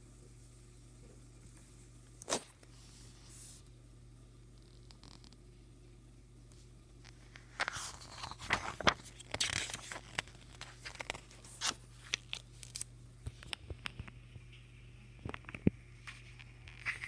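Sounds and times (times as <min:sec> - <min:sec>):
paper pages rustling: 0:07.3 - 0:13.5, 0:16.1 - 0:17.0.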